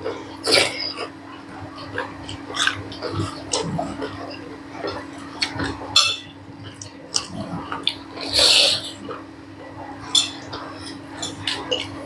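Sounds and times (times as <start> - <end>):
mouth eating sounds: 6.6 - 9.3.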